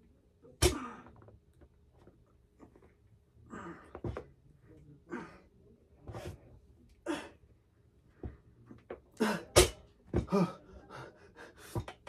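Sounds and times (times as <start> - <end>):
man exhaling and grunting: 0.6 - 1.2, 3.5 - 4.0, 7.1 - 7.4, 9.2 - 9.6.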